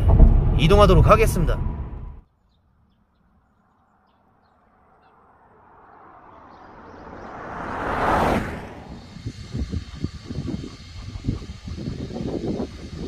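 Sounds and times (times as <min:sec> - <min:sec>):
car driving past: 0:04.5 - 0:10.0.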